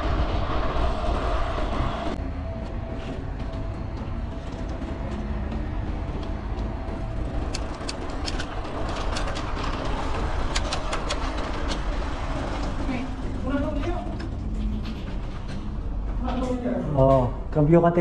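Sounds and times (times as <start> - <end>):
bicycle tyre rumble: 0.0 - 2.2.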